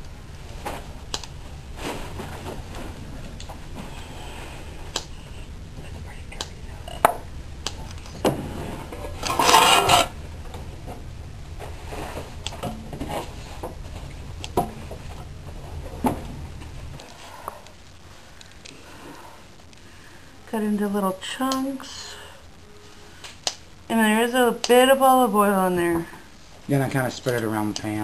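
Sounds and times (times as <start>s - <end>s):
steady low hum: 0.0s - 28.0s
rasping noise: 8.5s - 10.2s.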